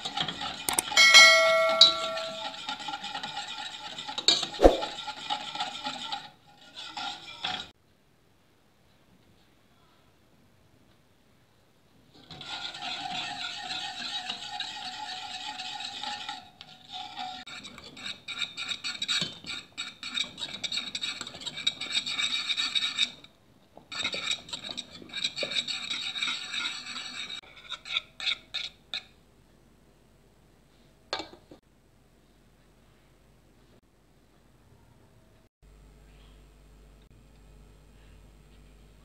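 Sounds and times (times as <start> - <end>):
whisk scraping in metal saucepan: 0.0 - 7.7, 12.2 - 29.2.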